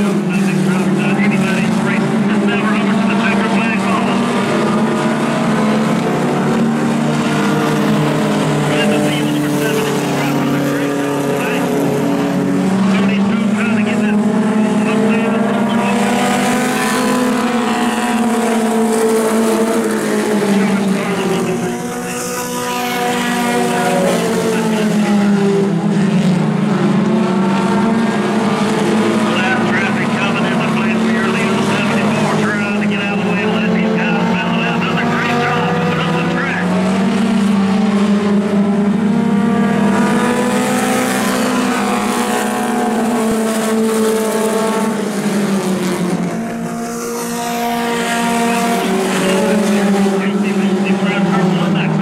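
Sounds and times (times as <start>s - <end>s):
race car engines: 0.0s - 52.0s.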